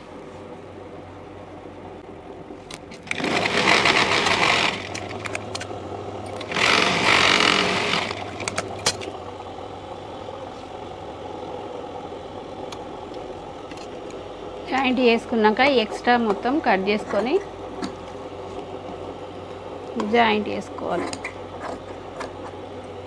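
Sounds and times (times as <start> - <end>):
sewing machine stitching: 3.0 - 5.2, 6.4 - 8.6.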